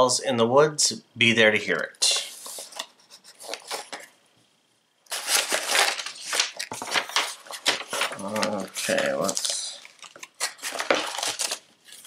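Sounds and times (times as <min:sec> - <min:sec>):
paper wrapping crinkling: 0:02.4 - 0:04.1, 0:05.1 - 0:12.0.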